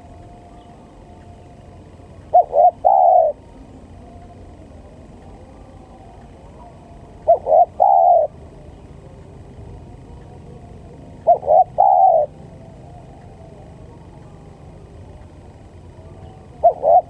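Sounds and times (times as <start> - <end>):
dove cooing: 2.0 - 3.6, 6.4 - 9.2, 9.8 - 14.2, 15.9 - 17.0.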